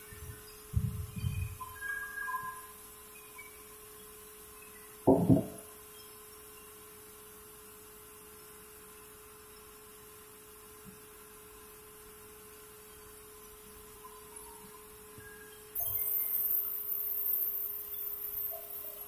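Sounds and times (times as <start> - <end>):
heavy wooden thuds: 5.1 - 5.6.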